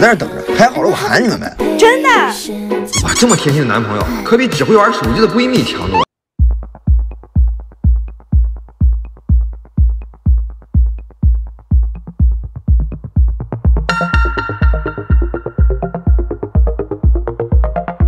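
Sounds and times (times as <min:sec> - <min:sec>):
bass kick drum beat: 0:06.4 - 0:18.0
bright synth layer: 0:13.9 - 0:16.9.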